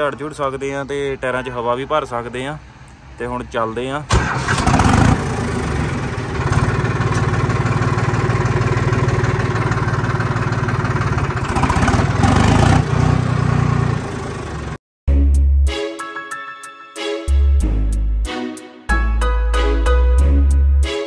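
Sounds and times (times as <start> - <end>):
tractor diesel engine running: 4.1 - 14.8
music: 15.1 - 21.0.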